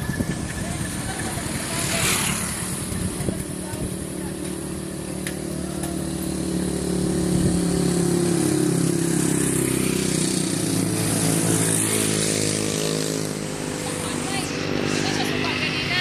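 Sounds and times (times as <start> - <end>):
motorcycles passing by: 0.0 - 16.0.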